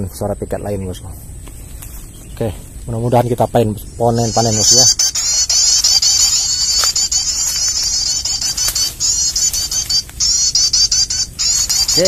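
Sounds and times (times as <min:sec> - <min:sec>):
bird chirps through phone speaker: 0:04.1 - 0:12.0.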